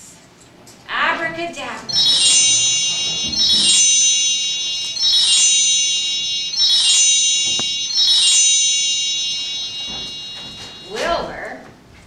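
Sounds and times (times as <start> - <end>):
shimmering chimes: 1.9 - 11.2.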